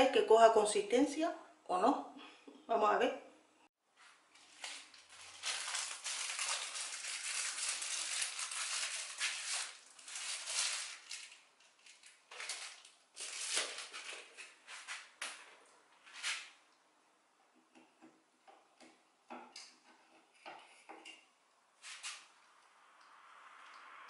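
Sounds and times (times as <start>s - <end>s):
crinkly rustling: 4.3s - 16.5s.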